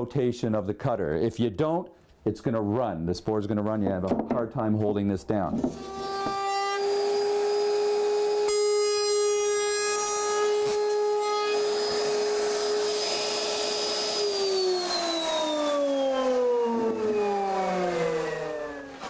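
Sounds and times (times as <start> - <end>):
router cutting wood: 5.7 - 19.0
router whine spinning down: 10.0 - 19.0.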